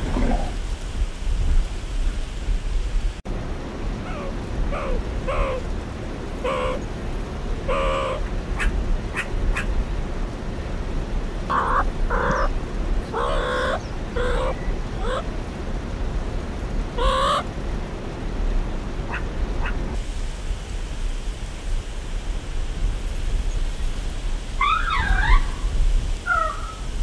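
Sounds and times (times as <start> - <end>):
meerkats chirping calls: 6.4 - 6.8, 7.7 - 9.7, 11.5 - 12.5, 13.1 - 15.2, 17.0 - 17.4.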